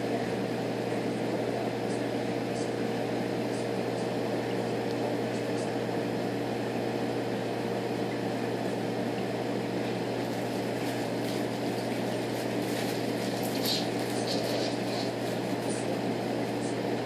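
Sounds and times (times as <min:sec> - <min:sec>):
aquarium pump hum: 0:00.0 - 0:17.0.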